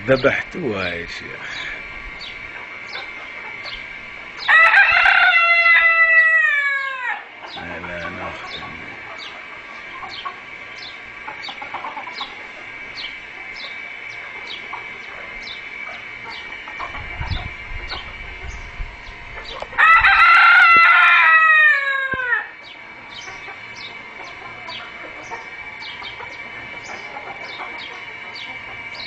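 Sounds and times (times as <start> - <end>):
rooster crowing: 4.4 - 9.7, 19.5 - 29.0.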